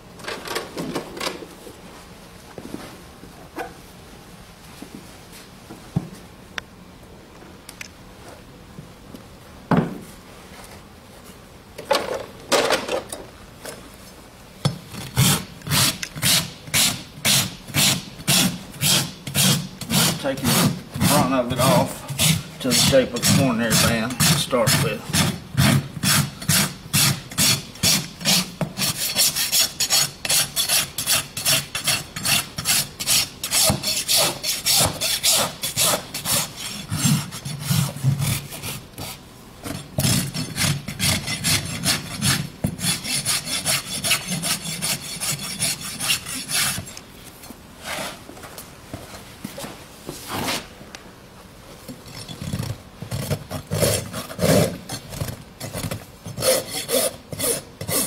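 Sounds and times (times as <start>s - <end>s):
rasp filing a hoof: 15.2s - 47.0s, 56.3s - 58.0s.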